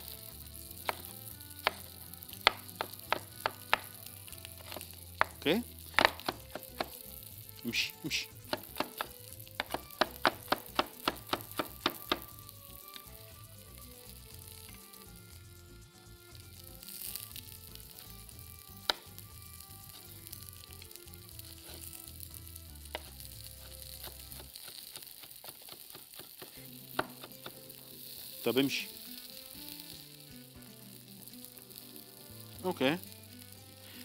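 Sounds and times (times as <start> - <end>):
vegetables sizzling in a pan: 0.0 - 34.0
knife chopping on wooden board: 0.8 - 4.0, 4.6 - 7.0, 8.4 - 12.3, 22.9 - 27.6.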